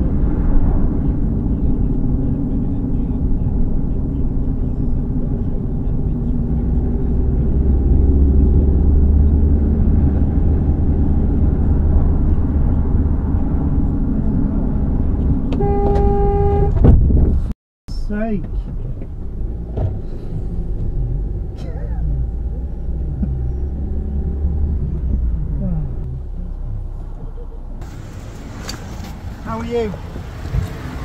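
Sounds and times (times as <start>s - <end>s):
van engine and road rumble: 0.0s - 31.0s
car horn: 15.5s - 16.9s.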